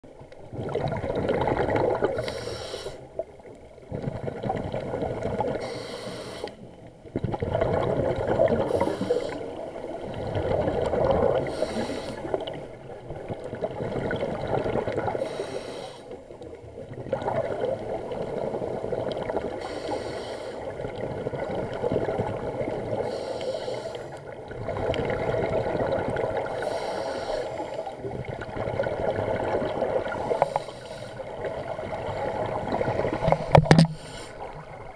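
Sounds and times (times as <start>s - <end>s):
exhaust bubbles underwater: 0.3s - 2.4s, 3.0s - 5.7s, 6.9s - 15.4s, 16.2s - 19.8s, 20.6s - 23.1s, 24.2s - 26.8s, 27.6s - 34.9s
regulator inhale hiss: 2.2s - 3.2s, 5.6s - 6.7s, 8.6s - 9.6s, 11.4s - 12.4s, 15.2s - 16.2s, 19.6s - 20.7s, 23.0s - 24.2s, 26.5s - 28.0s, 30.1s - 31.4s, 33.2s - 34.6s.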